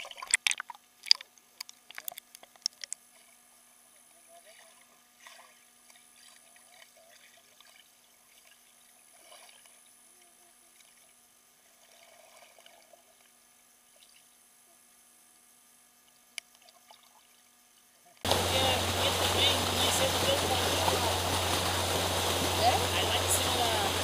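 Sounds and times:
faint underwater crackles and ticks: 0.0 - 14.9, 16.0 - 24.0.

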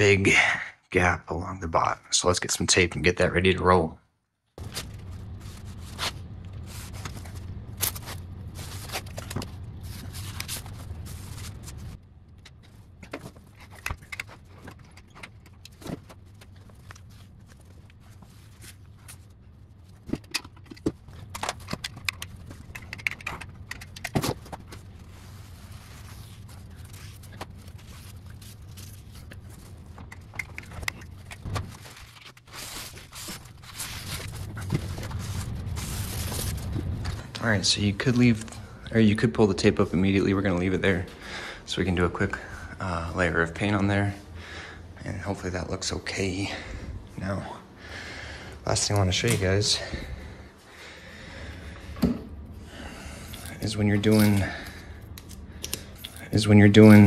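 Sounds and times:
steady low hum: 0.0 - 57.0
paper towel wiping: 4.6 - 9.2, 24.8 - 30.0, 31.2 - 36.7
tape pulled from roll: 24.4 - 37.1.

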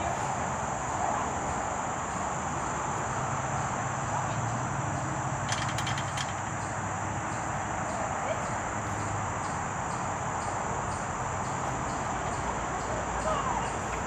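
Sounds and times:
low outdoor background hum: 0.0 - 14.0
high-pitched insect drone: 6.5 - 14.0.

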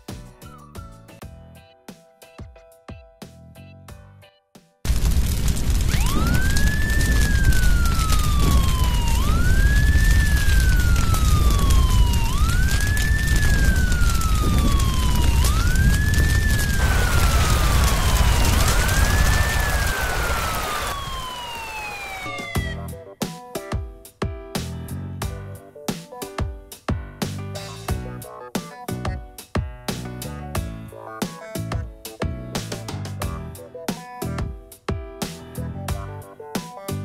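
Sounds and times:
heavy low rumble: 4.9 - 21.3
fire truck siren wailing: 5.4 - 22.9.

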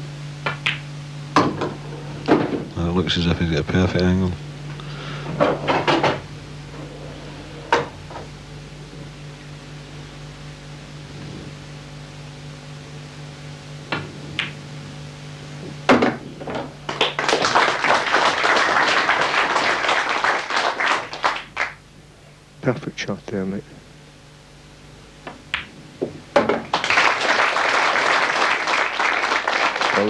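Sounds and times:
steady low hum: 0.0 - 30.0
pool balls clicking: 0.4 - 0.8, 13.9 - 14.7, 25.2 - 27.2
audience applause: 16.9 - 21.8, 26.7 - 30.0.

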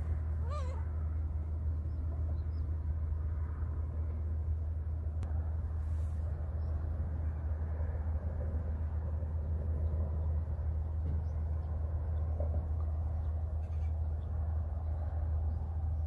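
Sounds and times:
gull mewing call: 0.4 - 0.9.

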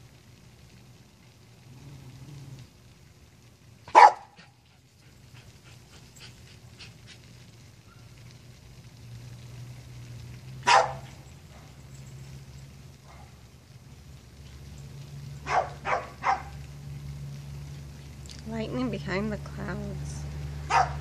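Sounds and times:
dog barking: 3.9 - 4.6, 10.6 - 11.8, 13.0 - 13.4, 15.4 - 16.6, 20.7 - 21.0.

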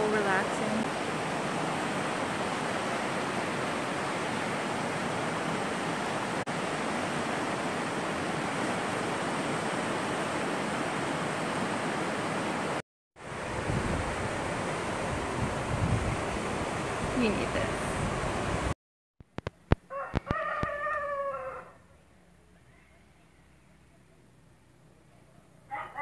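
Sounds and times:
water rushing over rocks: 0.0 - 18.7.

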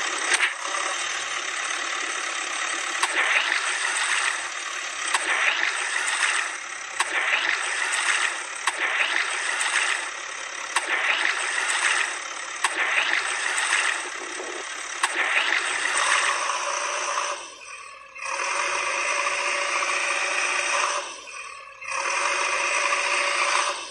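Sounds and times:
machine engine rattling: 0.0 - 23.9
sharp clicks: 2.9 - 4.3, 5.1 - 16.4.

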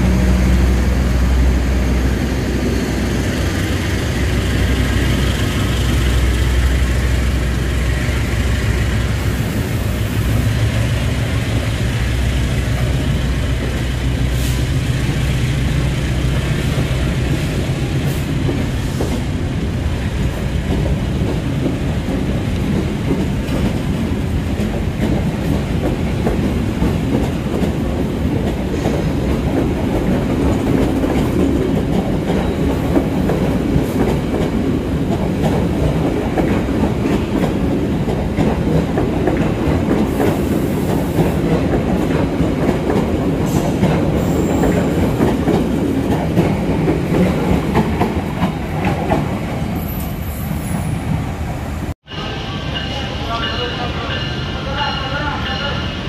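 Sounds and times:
train rumbling past: 0.0 - 56.0
high wheel squeals: 44.2 - 45.0.

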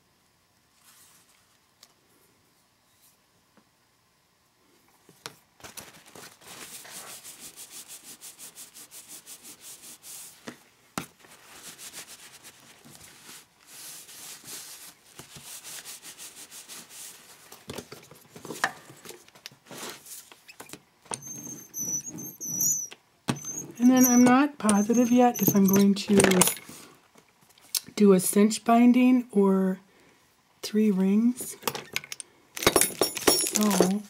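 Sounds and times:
paper towel rubbing paper: 6.2 - 10.5, 11.2 - 17.5, 23.5 - 25.5
handling clicks and knocks: 23.3 - 26.7, 31.6 - 34.0.

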